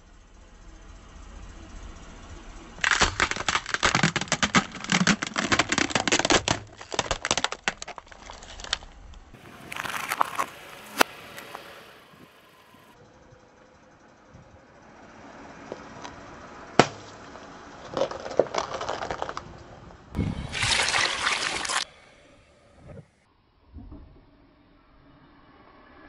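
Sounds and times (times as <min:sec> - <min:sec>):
plastic ball crackling and crinkling: 0:02.8 - 0:11.6, 0:17.8 - 0:19.7.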